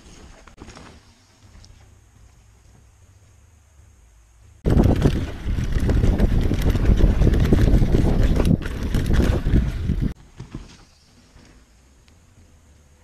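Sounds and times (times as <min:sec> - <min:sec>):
wind buffeting microphone: 0:04.6 - 0:10.2
bike tyres rattling over ground: 0:04.6 - 0:11.1.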